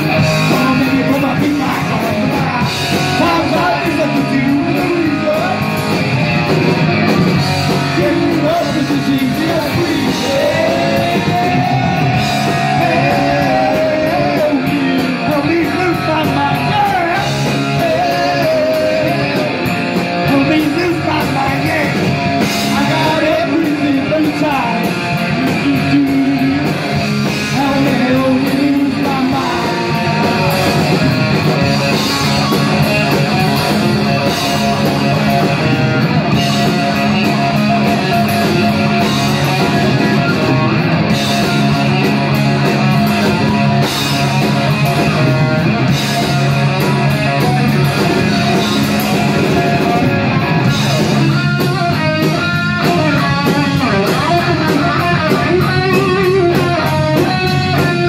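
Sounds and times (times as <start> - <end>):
bass guitar: 0.0 - 58.0
drums: 0.0 - 58.0
electric guitars: 0.0 - 58.0
person singing: 0.2 - 5.8, 7.8 - 30.9.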